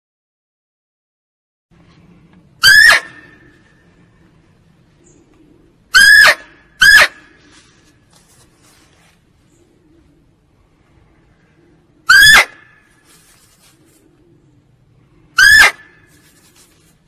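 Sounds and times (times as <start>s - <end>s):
muntjac barking: 2.6s - 3.6s, 5.9s - 7.5s, 12.0s - 12.9s, 15.3s - 16.7s.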